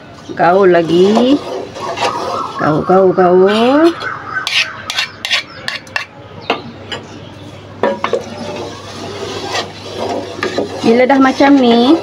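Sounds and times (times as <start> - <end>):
wooden spatula scraping a pot: 0.4 - 2.6, 3.5 - 6.1, 8.0 - 12.0.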